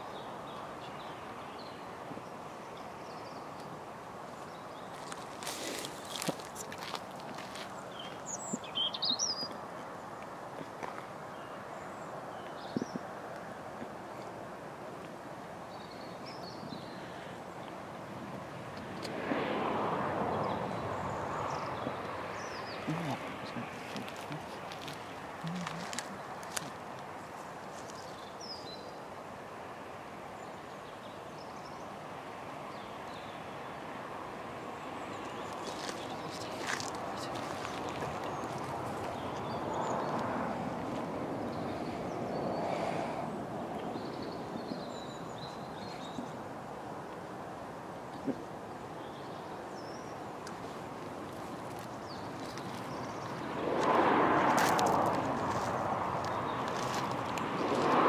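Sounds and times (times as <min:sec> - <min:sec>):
outdoor background noise: 0:00.0 - 0:58.0
bird chirping: 0:07.7 - 0:09.6.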